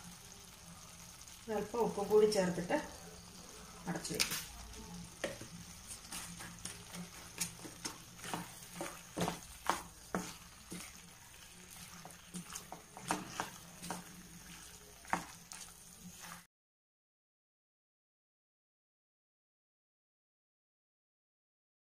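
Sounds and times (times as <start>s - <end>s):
soft sizzle in frying pan: 0.0s - 16.5s
spatula scraping pan: 5.1s - 16.5s.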